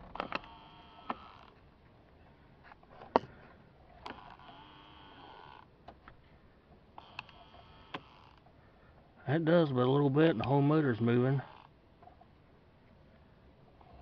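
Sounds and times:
actuator motor whirring faintly: 0.0 - 8.6.

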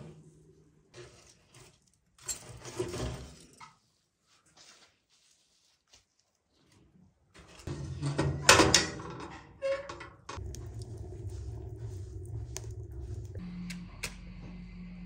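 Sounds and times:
fire rumbling in firebox: 10.3 - 15.0
fire crackling: 10.4 - 14.3.

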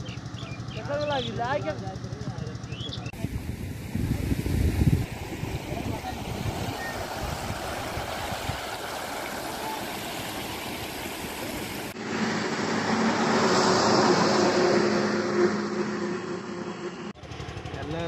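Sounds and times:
engine hum with low drone: 0.0 - 4.2, 11.9 - 18.0
wind buffeting microphone: 3.1 - 9.2
floodwater rushing: 3.2 - 15.9.

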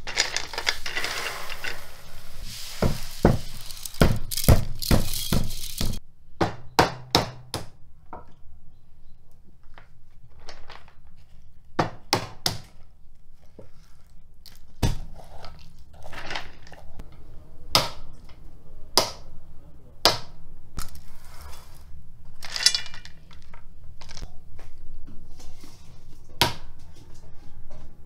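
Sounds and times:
shells rustling and rattling: 0.0 - 6.0, 22.3 - 24.3.

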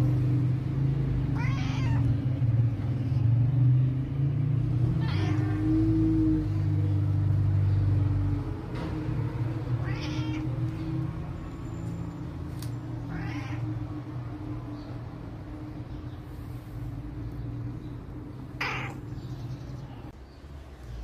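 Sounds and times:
cat meowing: 1.3 - 2.2, 5.0 - 6.0, 9.8 - 10.7, 13.0 - 13.8, 18.6 - 19.1.

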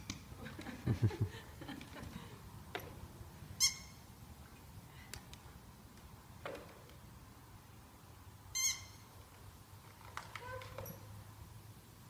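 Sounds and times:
rubber squeaky toy squeaking: 3.6 - 3.9, 8.6 - 9.0.

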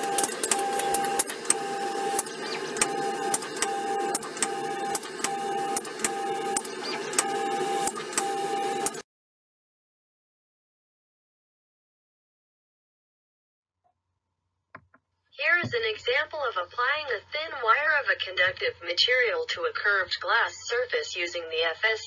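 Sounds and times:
machine hum and hiss: 0.0 - 9.0
short mechanical whine: 0.0 - 9.0.

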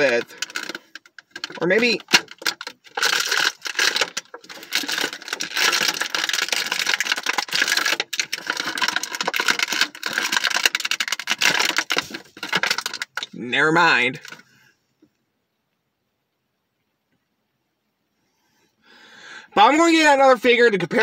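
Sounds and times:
plastic packaging crinkling: 0.0 - 13.4, 14.2 - 14.5.

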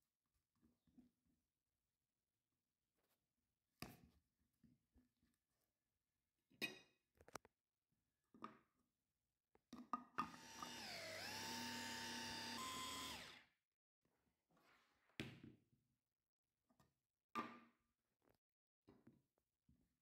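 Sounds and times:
food processor motor running: 10.2 - 13.5.

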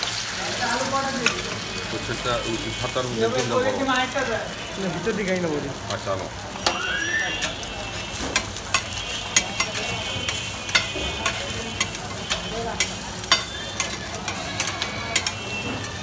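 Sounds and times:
eggs sizzling on griddle: 0.0 - 16.0
metal spatula scraping griddle: 6.6 - 16.0.

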